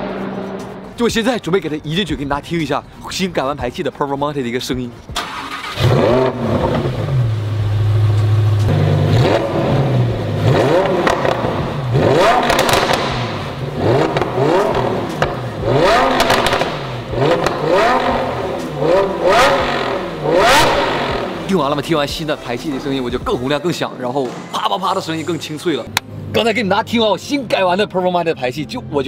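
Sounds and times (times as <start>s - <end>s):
car engine revving: 0.0s - 1.0s, 5.2s - 23.2s
exhaust pops: 10.8s - 21.8s.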